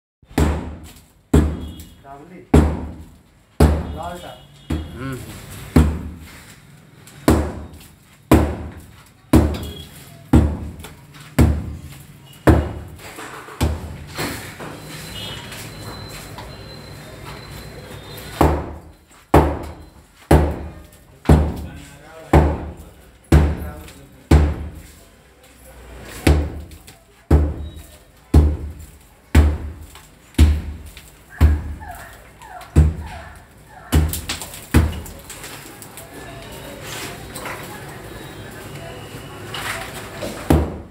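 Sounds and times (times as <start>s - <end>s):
sledgehammer striking brick wall: 0.3s - 1.9s, 2.5s - 4.1s, 5.7s - 6.3s, 7.2s - 10.8s, 11.4s - 14.4s, 18.3s - 24.8s, 26.2s - 31.8s, 32.7s - 33.1s, 33.9s - 35.2s, 40.4s - 40.9s.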